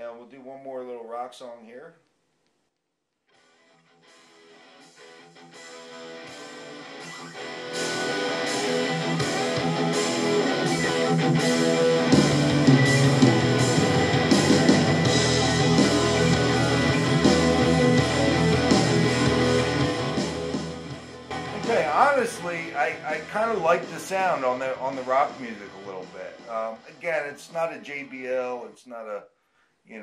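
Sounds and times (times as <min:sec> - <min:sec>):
rock song with electric guitar: 0:04.0 - 0:25.5.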